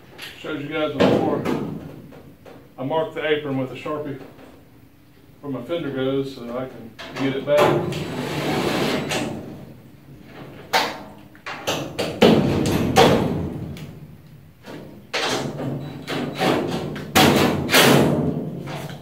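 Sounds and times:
metal knocks and clanks: 0:01.0 - 0:02.6, 0:14.6 - 0:19.0.

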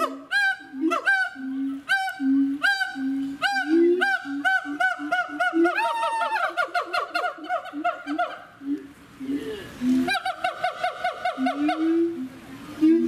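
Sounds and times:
lower-pitched call: 0:00.0 - 0:06.5.

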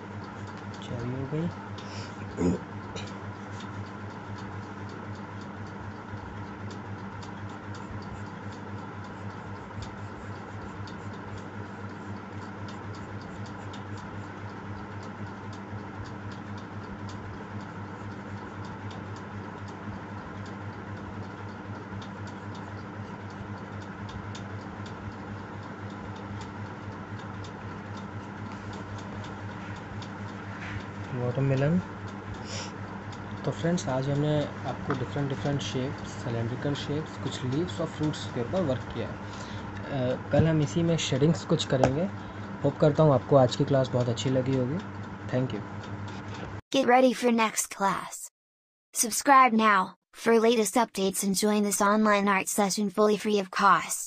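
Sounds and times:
pencil scratching on paper: 0:09.0 - 0:14.3.

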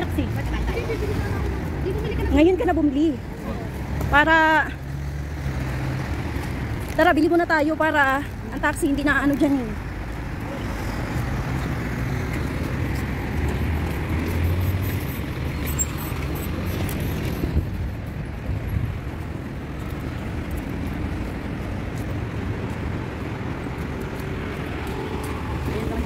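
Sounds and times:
cars driving past: 0:00.0 - 0:26.0.

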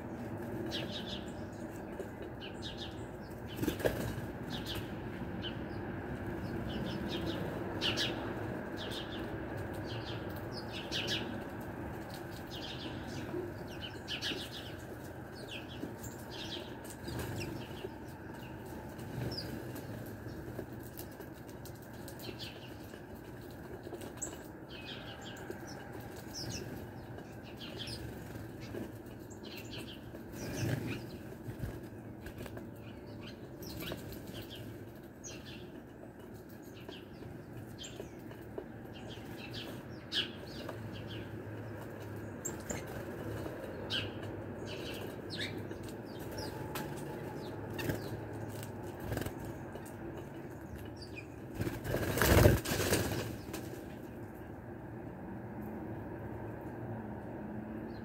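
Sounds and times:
sparrow wings fluttering: 0:51.6 - 0:53.8.

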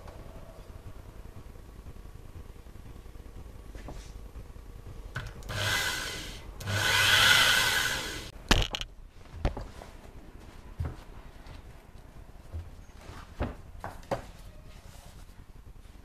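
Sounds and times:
power drill whining: 0:05.4 - 0:08.3.

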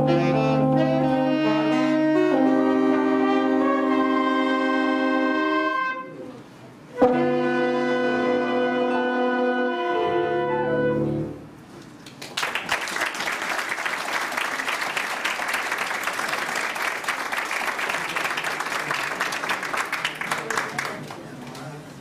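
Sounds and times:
brass ensemble with keyboard: 0:00.0 - 0:11.6
audience applause: 0:12.0 - 0:21.8.

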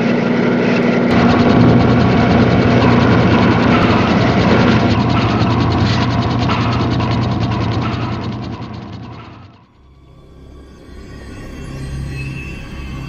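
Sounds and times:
rapid mechanical clicking and whirring: 0:00.3 - 0:09.7
steady low hum: 0:01.0 - 0:09.7.

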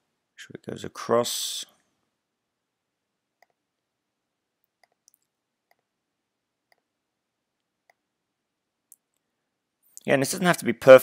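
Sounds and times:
computer mouse clicks: 0:04.6 - 0:05.9.

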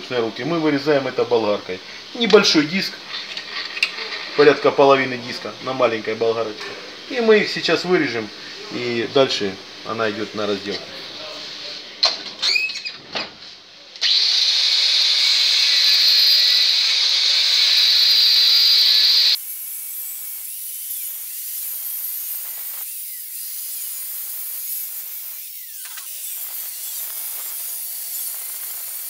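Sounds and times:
angle grinder cutting metal: 0:14.0 - 0:29.0.

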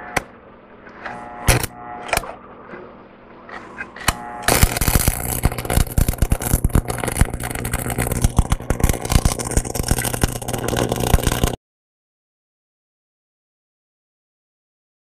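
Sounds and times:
steady low hum: 0:00.0 - 0:11.6
welding arc crackling and sizzling: 0:01.1 - 0:02.3, 0:04.0 - 0:11.6.

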